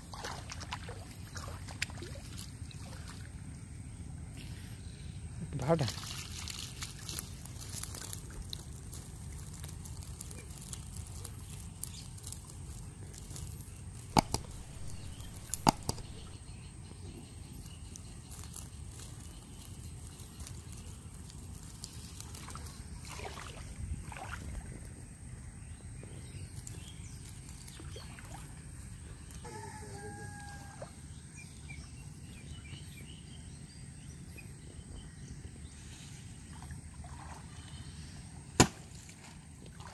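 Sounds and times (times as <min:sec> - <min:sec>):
water sloshing and dripping: 0:00.0 - 0:03.6, 0:05.8 - 0:16.4, 0:21.1 - 0:25.0, 0:36.4 - 0:37.9, 0:38.9 - 0:39.9
sharp clicks: 0:14.0 - 0:16.4.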